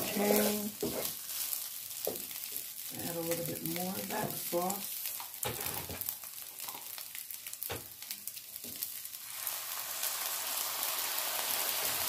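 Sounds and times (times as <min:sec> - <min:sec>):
fried rice sizzling in a pan: 0:00.0 - 0:12.0.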